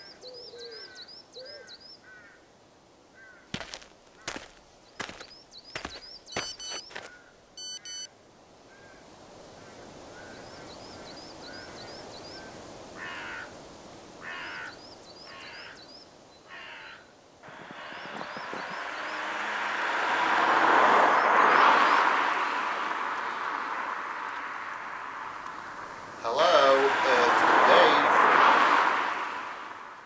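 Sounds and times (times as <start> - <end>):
crows cawing: 0.8 - 2.4, 3.2 - 5.2, 6.9 - 7.4, 13.0 - 13.6, 14.2 - 15.8, 16.5 - 17.1
small birds chirping: 3.3 - 8.1, 14.4 - 17.2
footsteps on tarmac: 3.5 - 8.1
double electronic beep: 6.3 - 7.0, 7.6 - 8.1
car approaching: 17.4 - 30.0.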